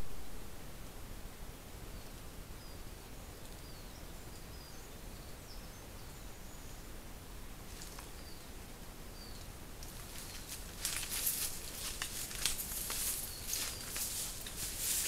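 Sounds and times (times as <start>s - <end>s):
steady background hiss: 0.0s - 15.0s
animal stepping through grass: 9.8s - 15.0s.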